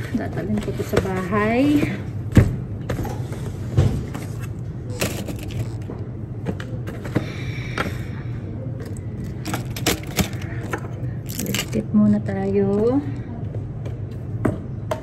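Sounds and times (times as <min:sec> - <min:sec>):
objects clicking and knocking: 0:04.9 - 0:07.2, 0:08.8 - 0:11.9.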